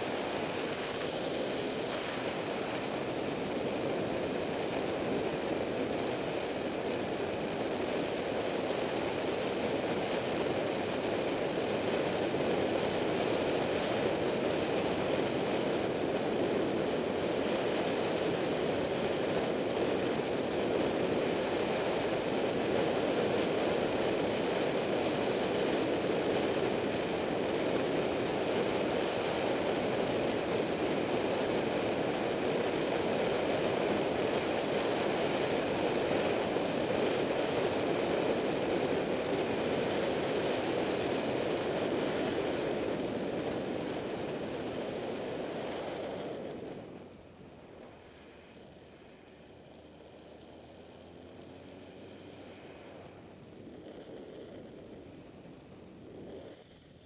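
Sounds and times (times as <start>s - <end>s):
rushing wind: 0.0s - 49.5s, 51.8s - 57.0s
vehicle road noise: 45.5s - 56.8s.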